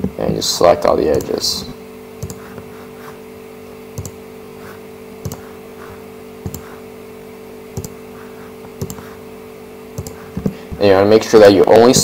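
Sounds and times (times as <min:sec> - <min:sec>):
steady low hum: 0:00.0 - 0:12.0
computer mouse clicks: 0:02.2 - 0:02.4, 0:04.0 - 0:04.2, 0:05.2 - 0:05.5, 0:06.5 - 0:06.7, 0:07.8 - 0:08.0, 0:08.8 - 0:09.1, 0:10.0 - 0:10.5.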